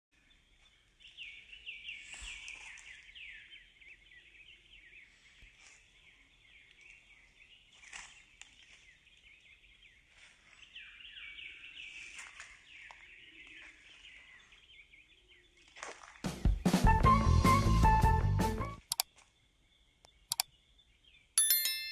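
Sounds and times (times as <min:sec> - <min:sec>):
sharp clicks: 0:18.8 - 0:19.1
birds chirping: 0:19.7 - 0:21.9.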